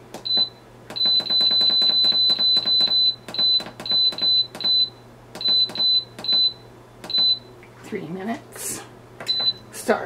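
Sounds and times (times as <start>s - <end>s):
pressure cooker beeping: 0.2s - 7.4s.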